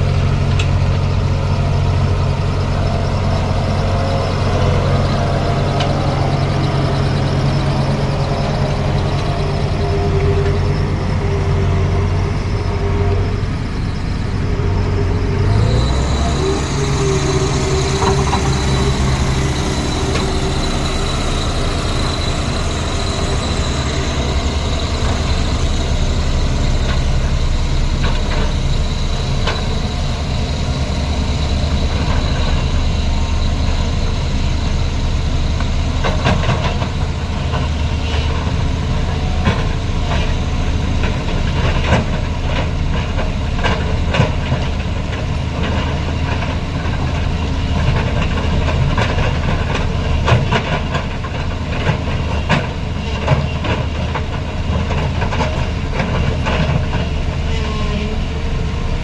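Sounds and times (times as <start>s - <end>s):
heavy diesel machinery running: 0.0s - 59.0s
excavator bucket clanking and scraping: 36.0s - 59.0s.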